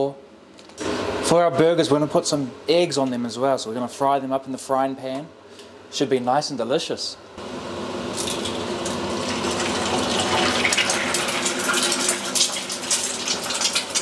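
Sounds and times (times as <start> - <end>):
egg sizzling in oil: 7.4 - 14.0.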